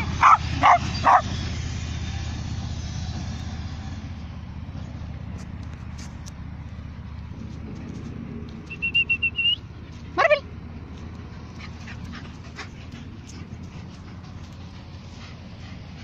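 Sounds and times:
dog yelp: 0.0s - 1.3s.

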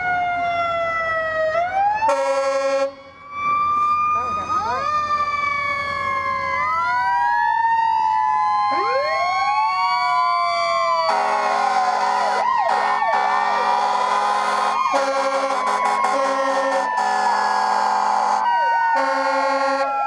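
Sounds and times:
fire truck sirens wailing: 0.0s - 20.0s
fire truck air horns blaring: 2.0s - 4.0s, 11.0s - 20.0s.

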